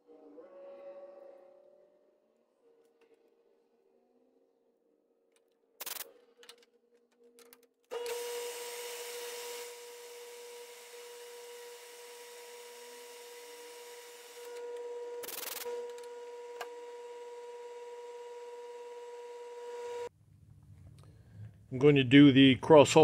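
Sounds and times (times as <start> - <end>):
metal lathe whining: 7.9 - 20.1.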